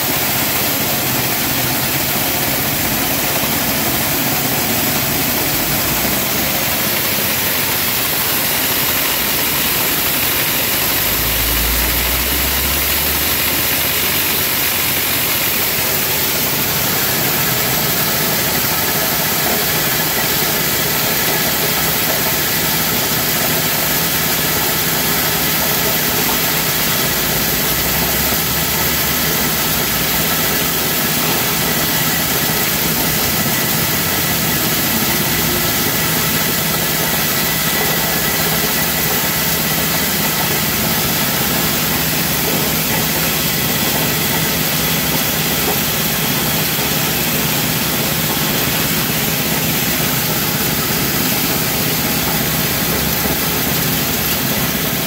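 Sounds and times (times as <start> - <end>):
high whine: 0.0 - 17.1
beans pouring rushing noise: 0.0 - 55.0
petrol engine droning: 0.0 - 55.0.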